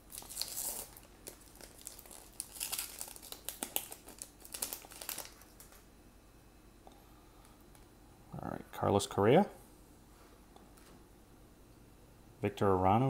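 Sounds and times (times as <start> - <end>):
card pack wrapper crinkling: 0.1 - 5.8.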